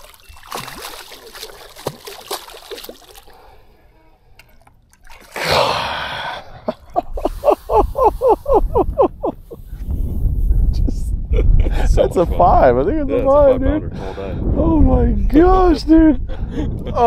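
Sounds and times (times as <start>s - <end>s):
water splashing and slapping: 0.0s - 3.7s, 4.3s - 5.8s.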